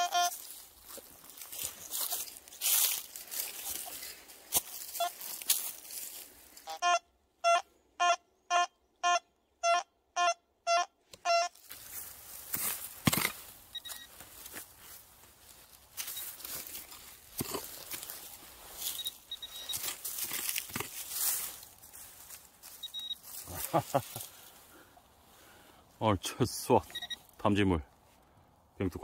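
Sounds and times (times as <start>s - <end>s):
metal detector beeps: 0.0s - 0.4s, 4.9s - 5.2s, 6.6s - 11.6s, 13.0s - 14.2s, 16.0s - 16.6s, 18.8s - 20.9s, 22.7s - 23.4s, 26.8s - 27.2s
footsteps in dry leaves: 0.0s - 6.8s, 11.5s - 24.9s
hand pick digging soil: 11.6s - 14.1s, 15.7s - 21.8s.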